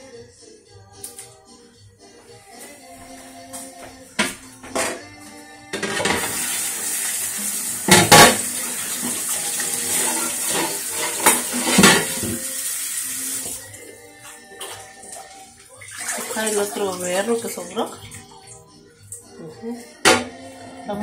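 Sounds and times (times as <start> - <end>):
faucet running into sink: 6.1 - 13.7, 15.7 - 18.3.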